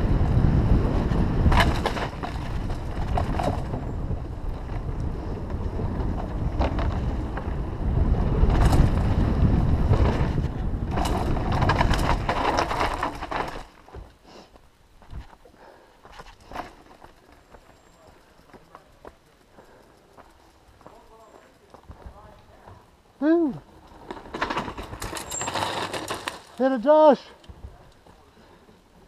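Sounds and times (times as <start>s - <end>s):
wind buffeting microphone: 0.0s - 12.9s
tyres rolling on dirt: 0.0s - 29.0s
bike rattling and knocking: 0.2s - 14.1s, 16.2s - 22.9s, 23.8s - 26.8s.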